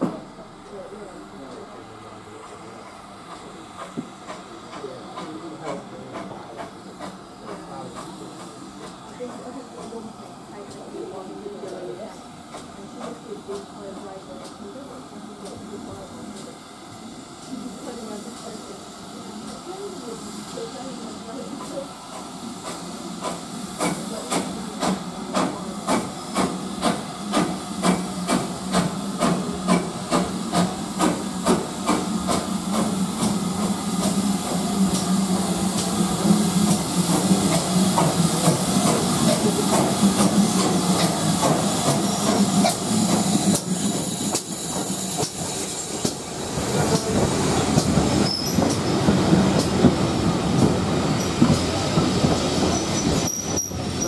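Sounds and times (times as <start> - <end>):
steam hissing: 0.0 - 54.0
steam locomotive chuffing: 0.0 - 54.0
wheels clattering on rail: 36.7 - 54.0.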